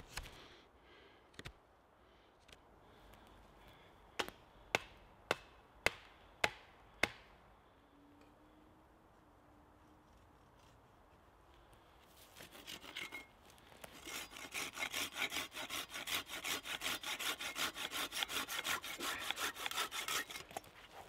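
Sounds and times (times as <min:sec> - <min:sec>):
hand saw cutting wood: 0:12.4 - 0:21.0.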